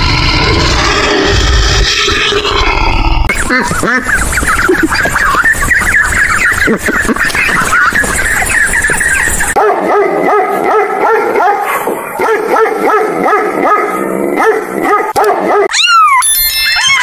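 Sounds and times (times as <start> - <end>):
dog yipping: 15.2 - 17.0
cat meowing: 15.7 - 17.0.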